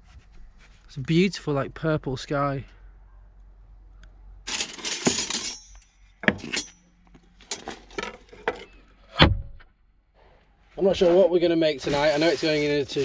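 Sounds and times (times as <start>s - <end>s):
kitchen utensils clattering: 4.5s - 6.8s
rustling: 10.3s - 13.0s.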